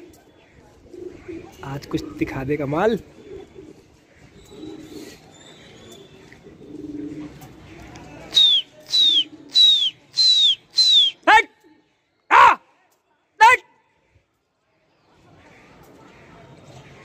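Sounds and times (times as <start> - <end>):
pigeons cooing: 0.0 - 7.9, 9.1 - 9.8
sharp falling whistles: 8.4 - 11.2.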